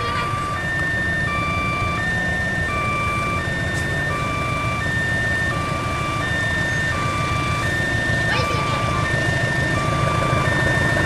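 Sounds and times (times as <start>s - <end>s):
diesel locomotive rumble: 0.0s - 11.0s
two-tone railway warning alarm: 0.0s - 11.0s.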